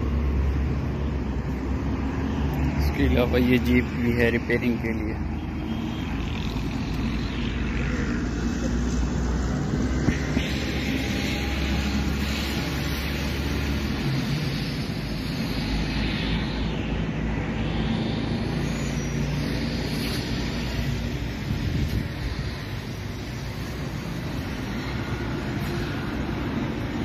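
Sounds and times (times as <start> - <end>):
low engine hum: 0.0 - 27.0
wind on microphone: 19.2 - 25.1.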